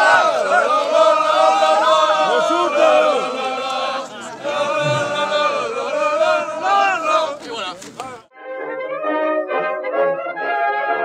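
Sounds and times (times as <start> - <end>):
men singing together: 0.0 - 8.2.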